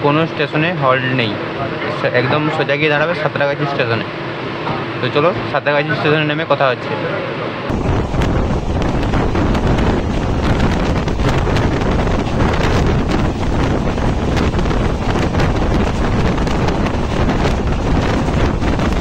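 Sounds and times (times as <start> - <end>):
train roaring on rails: 0.0 - 19.0
wind buffeting microphone: 7.7 - 19.0.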